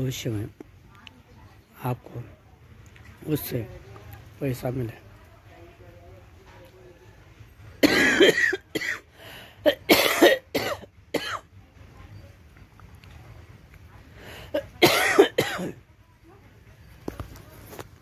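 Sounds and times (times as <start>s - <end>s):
man coughing: 7.8s - 9.0s, 9.7s - 11.4s, 14.6s - 15.8s.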